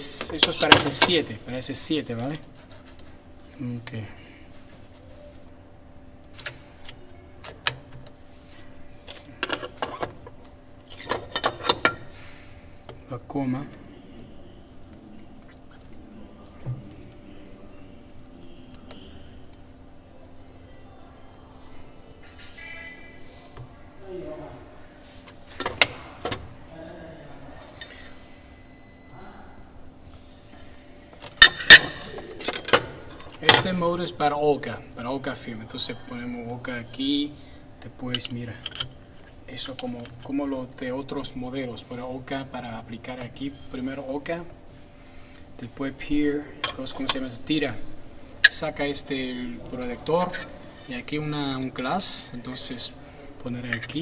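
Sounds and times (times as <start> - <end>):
faint steady hum: 0.0 - 54.0
thin metallic ringing tone: 27.0 - 32.2.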